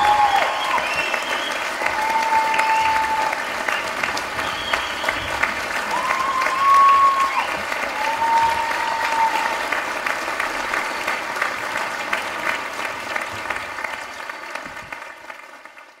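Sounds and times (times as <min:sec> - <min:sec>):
long whistle: 0:00.0 - 0:07.6
audience applauding: 0:00.0 - 0:16.0.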